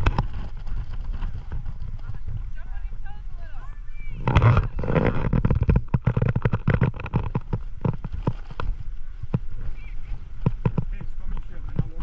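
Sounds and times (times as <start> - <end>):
wind buffeting microphone: 0.0 - 12.0
pops and knocks: 4.3 - 8.7, 10.4 - 11.0.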